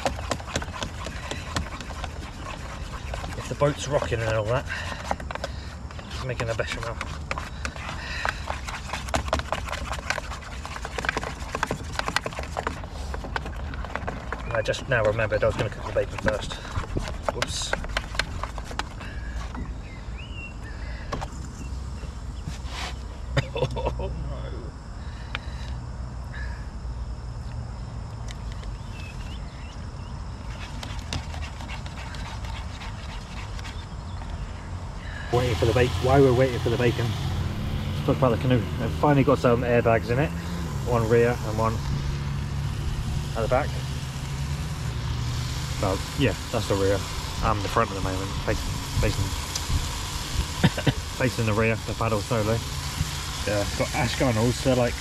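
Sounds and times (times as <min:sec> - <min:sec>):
whisk scraping metal pan: 0:00.0 - 0:13.2.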